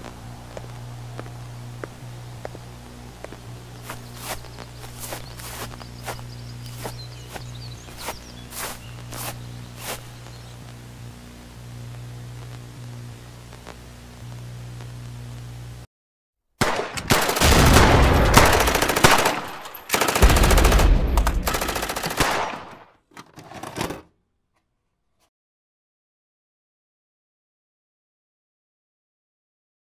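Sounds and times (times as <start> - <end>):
low steady drone: 0.0 - 15.8.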